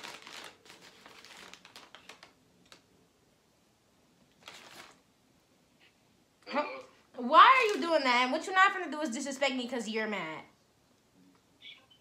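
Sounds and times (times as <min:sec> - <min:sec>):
paper food wrapper crinkling: 0:00.0 - 0:02.9, 0:04.3 - 0:05.1, 0:07.2 - 0:08.4.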